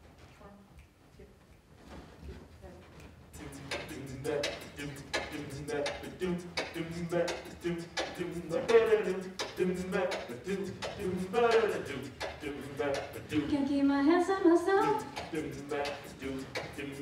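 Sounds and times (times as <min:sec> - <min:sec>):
beatboxing: 0:03.4 - 0:13.7, 0:14.8 - 0:17.0
a cappella group singing: 0:03.4 - 0:17.0.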